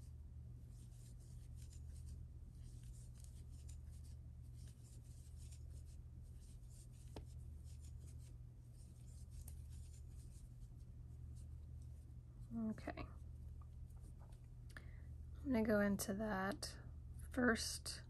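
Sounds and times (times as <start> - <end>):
yarn scratching with crochet hook: 0.0 - 13.2.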